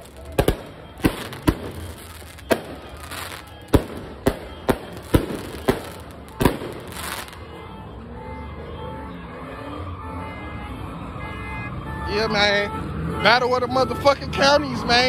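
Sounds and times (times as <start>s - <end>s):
fireworks bursting bangs: 0.0s - 7.4s.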